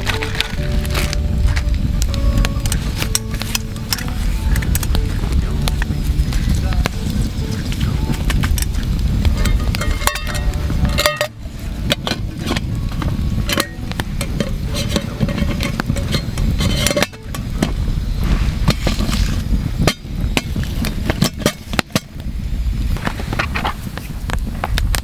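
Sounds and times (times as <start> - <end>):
campfire crackling and popping: 0.0 - 25.0
low rumble: 0.0 - 25.0
metal lid clinking on pot: 9.4 - 17.7.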